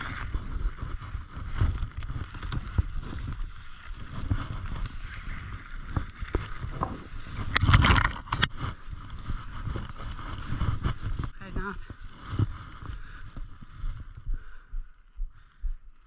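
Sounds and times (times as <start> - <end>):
branches brushing: 0.0 - 14.2
footsteps crunching in snow: 0.0 - 15.5
wind rumble on microphone: 0.0 - 15.8.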